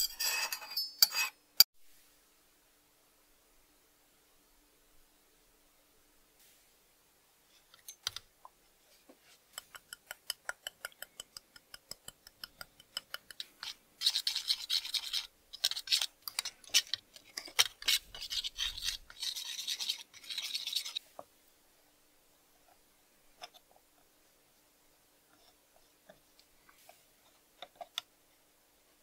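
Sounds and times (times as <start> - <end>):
palette knife scraping metal lid: 0.0 - 1.4, 13.0 - 21.0.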